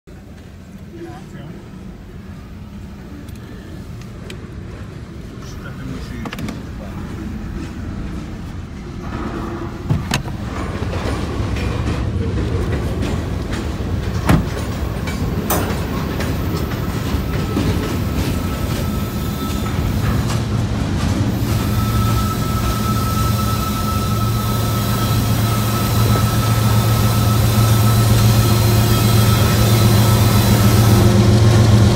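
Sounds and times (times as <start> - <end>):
train wheels rumbling on rail: 0.1 - 31.9
thin steady squeal: 21.5 - 30.7.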